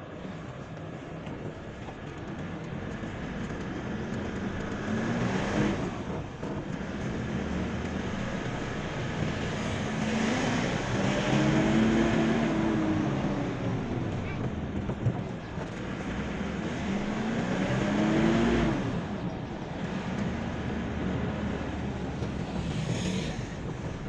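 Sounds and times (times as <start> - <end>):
car engine: 0.0 - 24.0
tyre noise: 0.4 - 24.0.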